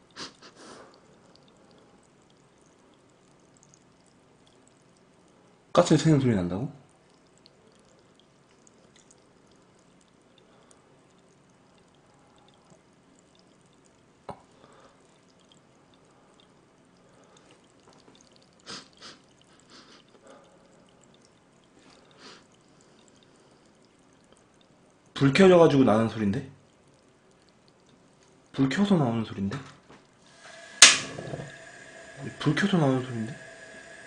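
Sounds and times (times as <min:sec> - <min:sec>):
stew simmering hiss: 0:00.0 - 0:12.7, 0:16.1 - 0:24.2, 0:30.3 - 0:34.0
sharp click: 0:30.8 - 0:31.4
bubbling pops: 0:30.8 - 0:34.0.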